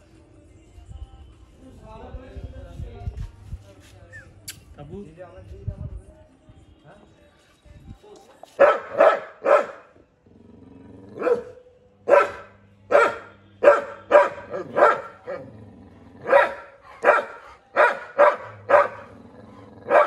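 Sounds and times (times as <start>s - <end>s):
dog barking: 8.6s - 10.0s, 11.2s - 15.4s, 16.2s - 20.0s.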